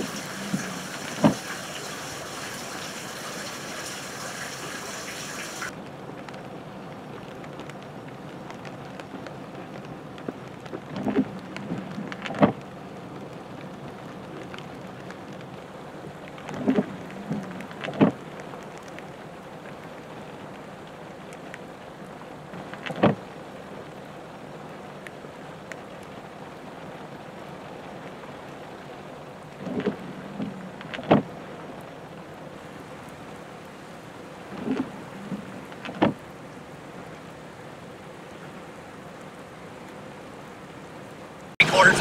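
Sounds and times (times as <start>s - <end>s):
freezing rain hissing on ice: 0.0s - 6.1s, 41.6s - 42.0s.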